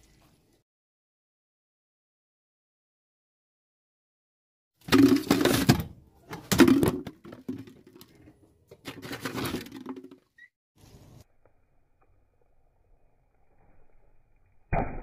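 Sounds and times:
hollow plastic crackling and scraping: 4.8s - 10.3s.

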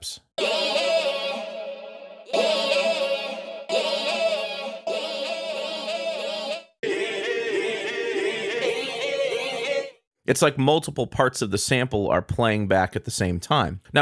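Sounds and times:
layered vocal synth notes: 0.4s - 10.0s.

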